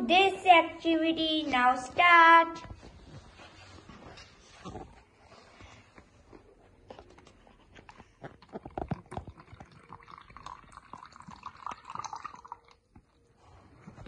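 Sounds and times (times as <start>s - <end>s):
liquid pouring into plastic cup: 8.6s - 13.3s.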